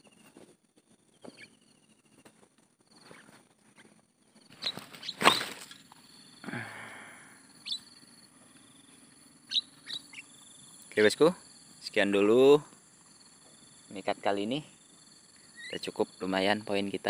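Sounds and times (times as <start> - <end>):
small birds chirping: 0.0 - 17.0
brief rustle: 4.5 - 6.0.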